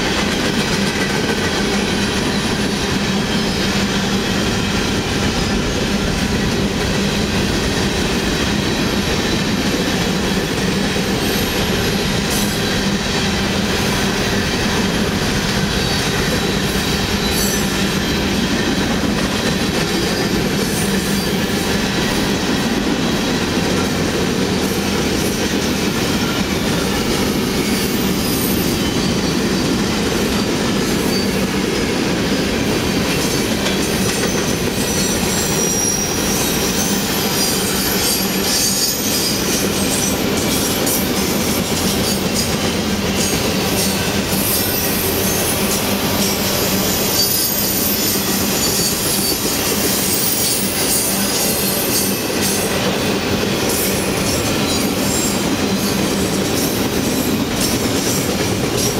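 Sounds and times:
freight train wheels rumbling: 0.0s - 58.9s
high-pitched wheel squeals: 34.9s - 40.2s, 42.1s - 52.2s.

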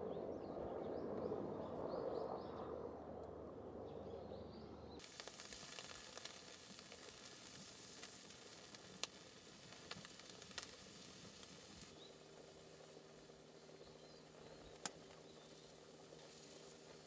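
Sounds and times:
rice sizzling in a pot: 5.0s - 17.0s.

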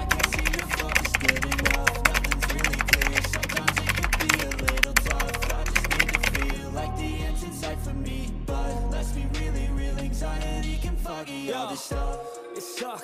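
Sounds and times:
keyboard typing clicks: 0.0s - 6.6s
hip-hop instrumental: 0.0s - 13.0s.

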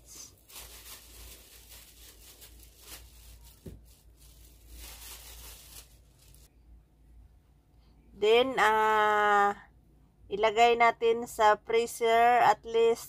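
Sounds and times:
plastic bag rustling: 0.0s - 6.5s
soft handling noises: 0.0s - 6.5s.

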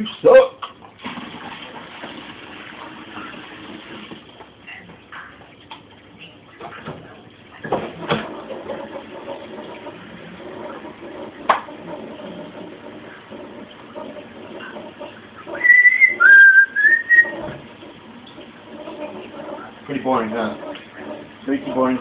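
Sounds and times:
kitchen knocks and clatters: 6.5s - 15.7s, 17.2s - 22.0s.

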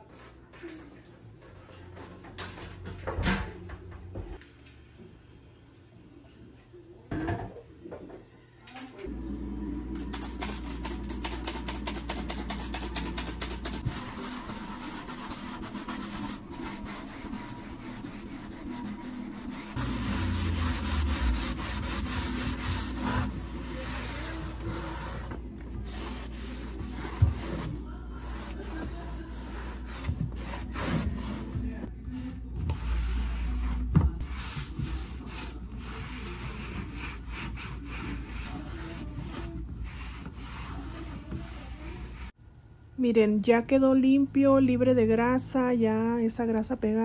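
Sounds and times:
sponge scrubbing wood: 10.4s - 42.3s
cloth wiping: 12.6s - 42.3s.

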